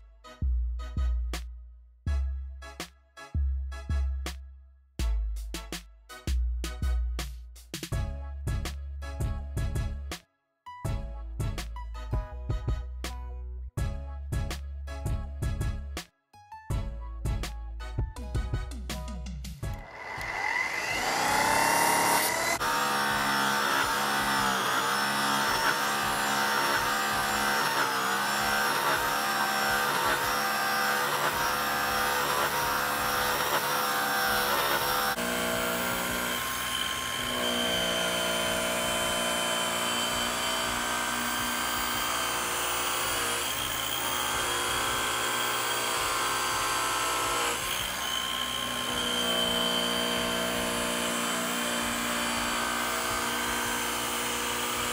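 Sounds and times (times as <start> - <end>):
rotary polisher whining: 19.7 - 54.9.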